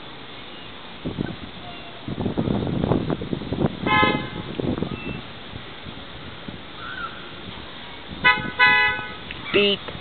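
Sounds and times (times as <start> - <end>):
street traffic noise: 0.0 - 10.0
car horn toot: 3.8 - 5.2, 8.2 - 9.2.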